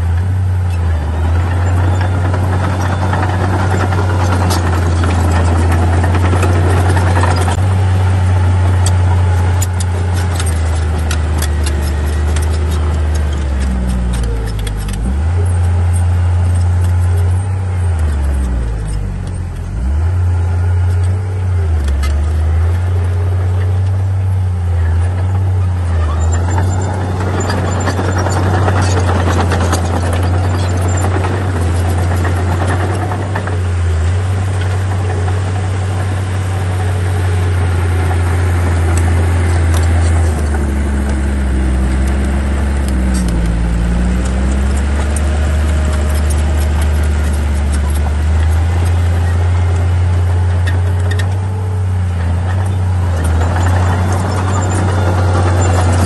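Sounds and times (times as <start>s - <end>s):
bulldozer diesel engine under load: 0.0s - 56.0s
machine clattering: 1.4s - 7.7s, 26.2s - 33.7s, 52.5s - 56.0s.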